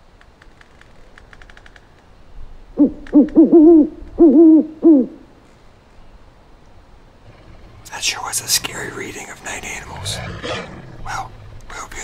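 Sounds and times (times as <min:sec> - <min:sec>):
owl hooting: 0:02.8 - 0:05.3, 0:07.3 - 0:12.0.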